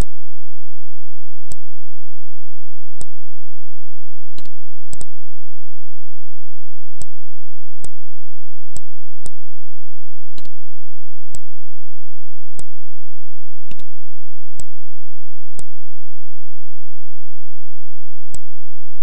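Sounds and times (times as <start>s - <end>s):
computer mouse clicking: 13.7s - 13.9s.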